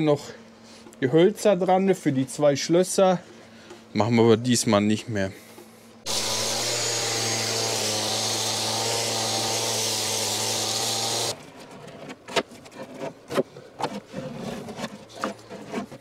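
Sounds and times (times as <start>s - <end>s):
workshop machine humming: 5.6s - 11.4s.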